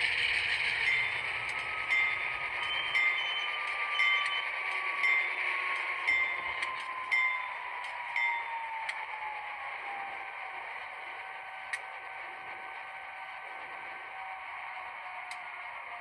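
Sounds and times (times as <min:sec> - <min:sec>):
locomotive bell ringing: 0:00.0 - 0:09.3
diesel engine sound: 0:00.0 - 0:16.0
model train rolling on track: 0:00.0 - 0:16.0.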